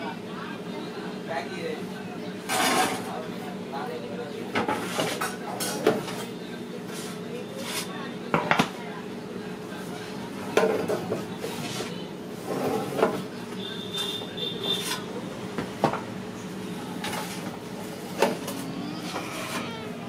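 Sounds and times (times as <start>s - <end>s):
metal on metal squeal: 19.0s - 19.8s.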